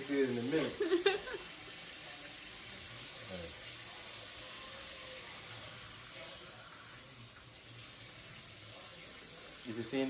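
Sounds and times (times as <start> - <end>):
faucet running into steel sink: 0.0 - 10.0.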